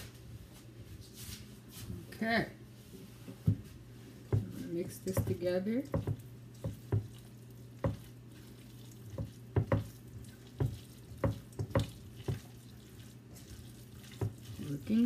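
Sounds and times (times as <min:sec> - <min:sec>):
low steady hum: 0:00.0 - 0:15.0
spatula knocking against metal bowl: 0:04.3 - 0:07.1, 0:09.2 - 0:09.9, 0:10.6 - 0:12.5.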